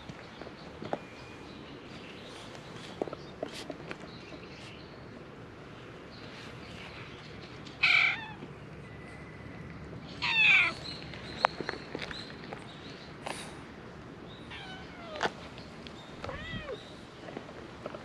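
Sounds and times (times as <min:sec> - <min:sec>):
cat meowing: 0:07.8 - 0:08.4, 0:10.2 - 0:10.8, 0:14.5 - 0:15.3, 0:16.2 - 0:16.8.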